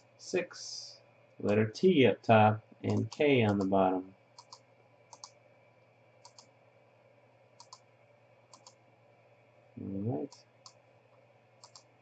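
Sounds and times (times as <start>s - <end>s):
low steady hum: 0.0s - 12.0s
computer mouse clicks: 2.9s - 3.7s, 4.3s - 5.4s, 6.2s - 6.6s, 7.6s - 7.9s, 8.5s - 8.8s, 10.3s - 12.0s.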